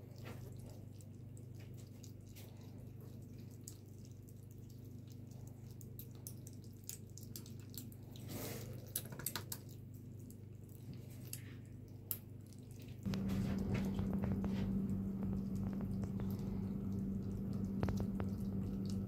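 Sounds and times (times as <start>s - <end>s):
kittens chewing wet food: 0.0s - 19.0s
steady low hum: 9.7s - 19.0s.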